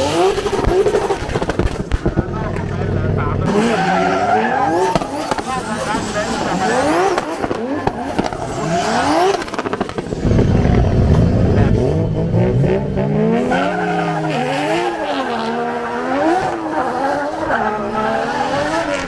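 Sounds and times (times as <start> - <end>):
car engine at high revs: 0.0 - 19.0
tyres skidding: 0.0 - 19.0
heavy low rumble: 10.0 - 12.9.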